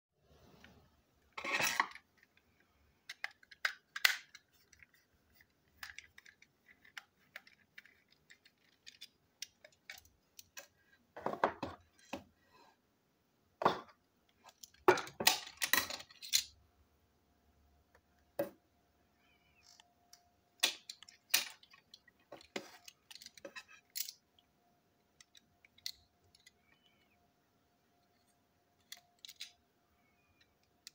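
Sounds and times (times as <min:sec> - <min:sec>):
small plastic parts clicking and clattering: 0:00.5 - 0:12.3, 0:13.7 - 0:16.6, 0:19.6 - 0:24.5, 0:25.1 - 0:27.2, 0:28.0 - 0:30.9.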